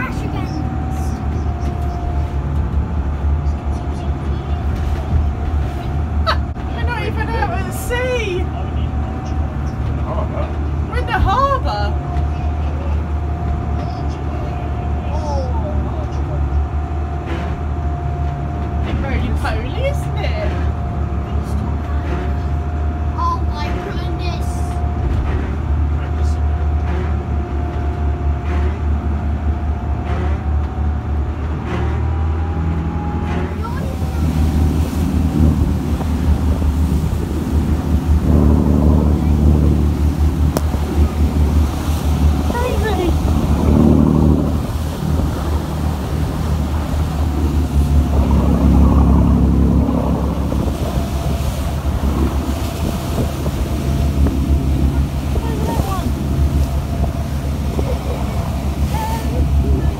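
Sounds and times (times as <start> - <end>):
low engine drone: 0.0 - 59.9
water splashing against hull: 0.0 - 59.9
wind buffeting microphone: 16.6 - 59.9.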